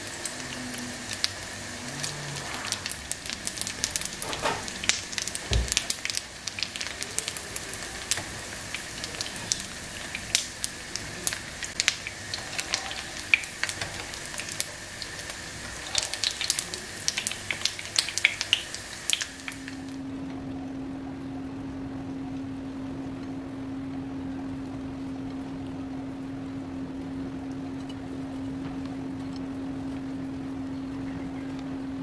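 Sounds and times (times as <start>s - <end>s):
food sizzling in hot oil: 0.0s - 20.0s.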